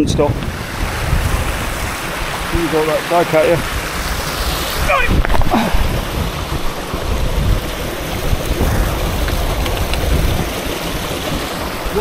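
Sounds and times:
stream rushing over boulders: 0.0s - 12.0s
wind buffeting microphone: 0.0s - 12.0s.

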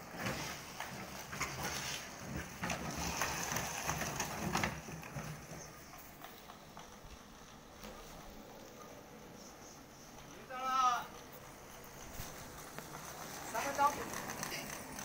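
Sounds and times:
plastic bottles rattling on scooter: 0.0s - 8.4s, 10.1s - 15.0s.

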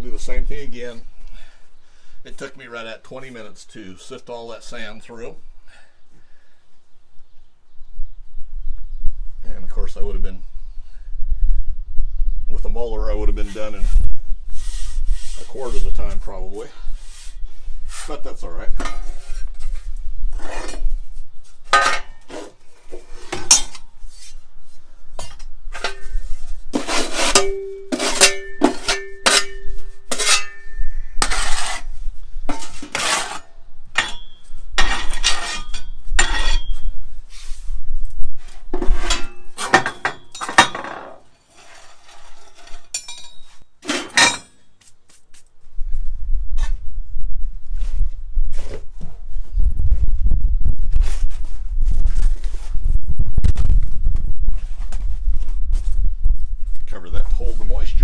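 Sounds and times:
metal tools clanking: 27.2s - 30.8s, 34.0s - 36.8s, 39.1s - 44.6s.

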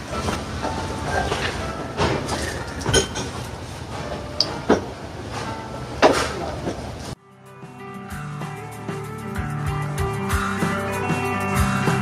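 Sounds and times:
music: 0.0s - 2.9s, 7.2s - 12.0s
steady background noise: 0.0s - 7.2s
utensils knocking on bowl: 0.1s - 3.4s.

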